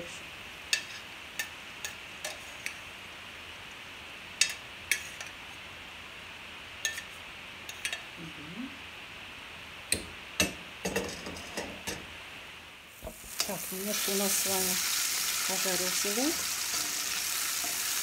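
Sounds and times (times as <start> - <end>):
hot oil sizzling: 0.0 - 8.0, 9.8 - 18.0
metal spoon clinking on pans: 0.7 - 2.8, 4.4 - 5.3.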